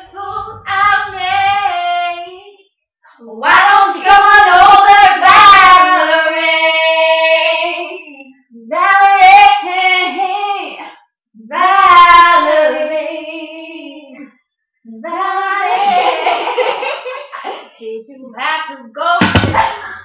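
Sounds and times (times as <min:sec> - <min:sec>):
women singing unaccompanied: 0:00.0 - 0:16.6, 0:17.8 - 0:20.0.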